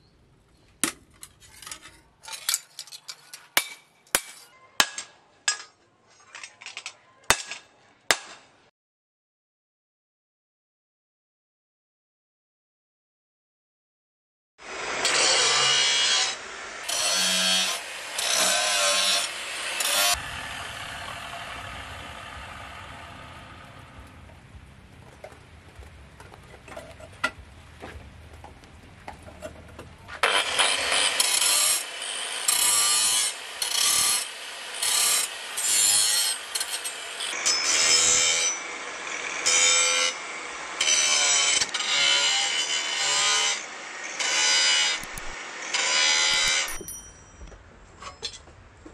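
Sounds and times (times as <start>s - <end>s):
angle grinder cutting steel: 14.6s - 24.1s, 30.2s - 47.1s.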